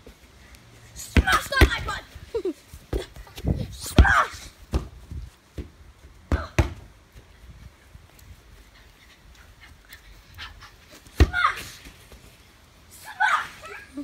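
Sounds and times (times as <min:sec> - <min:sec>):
football thuds: 0:01.0 - 0:02.0, 0:02.9 - 0:07.2, 0:11.1 - 0:11.5.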